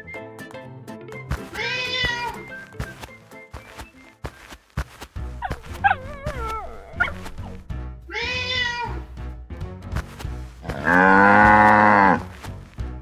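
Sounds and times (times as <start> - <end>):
background music: 0.0 - 13.0
cat meow: 8.1 - 9.0
cow moo: 10.7 - 12.3.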